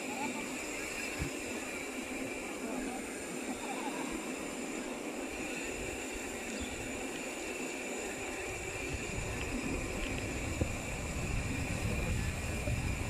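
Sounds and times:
bicycle tyres on asphalt: 0:00.0 - 0:13.0
wind rushing: 0:08.8 - 0:13.0.

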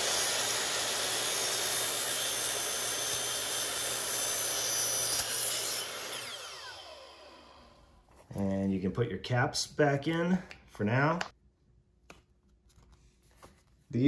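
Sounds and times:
miter saw cutting: 0:00.0 - 0:07.8
saw motor winding down: 0:00.0 - 0:07.9.

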